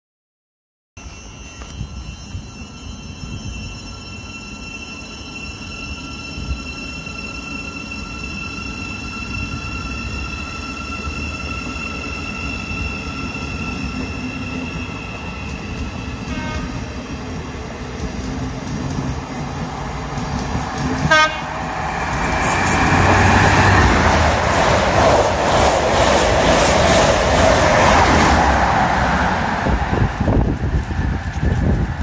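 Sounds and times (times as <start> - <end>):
electric train two-tone whine: 1.0 - 32.0
train low rumble: 7.8 - 32.0.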